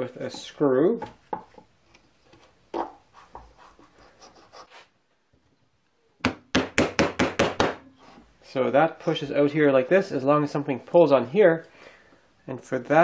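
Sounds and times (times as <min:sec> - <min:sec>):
sharp knocks: 0:06.2 - 0:07.8.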